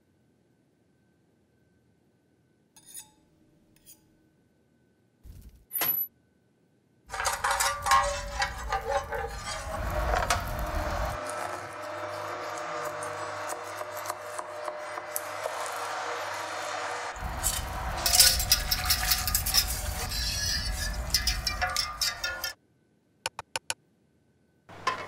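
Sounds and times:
metal spatula clinking on grill tray: 7.1 - 9.6, 18.0 - 22.6
embers crackling and hissing: 7.1 - 22.5.

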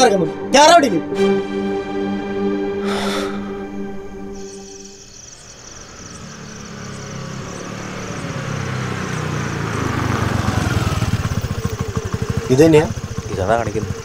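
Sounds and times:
steady high chirring: 1.7 - 9.9
motorbike engine running: 5.2 - 14.0.

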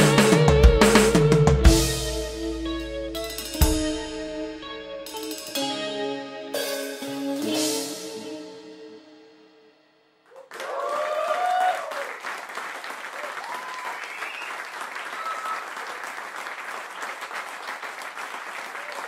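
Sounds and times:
audience applause: 10.3 - 19.0
people cheering: 10.3 - 19.0.

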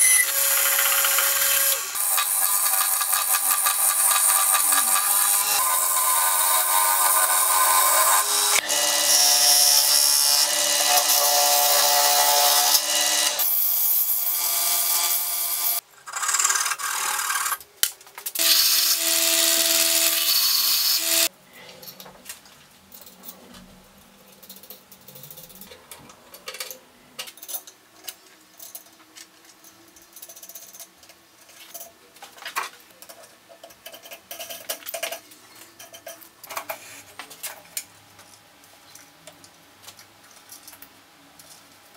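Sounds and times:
wood lathe motor humming: 0.0 - 13.4, 18.4 - 21.3
turning tool cutting wood: 0.0 - 17.6, 18.4 - 21.3
small metal parts clicking: 24.2 - 36.8.

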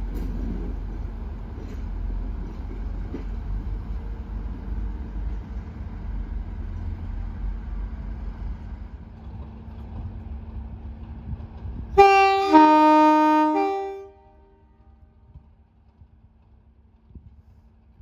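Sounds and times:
diesel locomotive rumble: 0.0 - 18.0
train two-tone horn: 12.0 - 15.0.

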